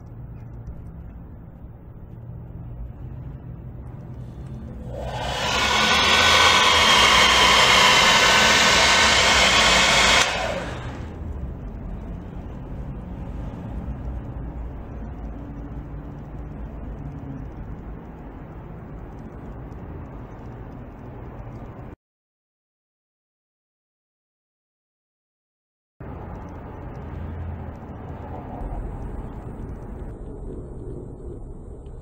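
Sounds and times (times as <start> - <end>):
quiet low rumble: 0.0 - 5.5, 8.0 - 22.0, 26.0 - 32.0
whirring motor with high whine: 4.0 - 12.1.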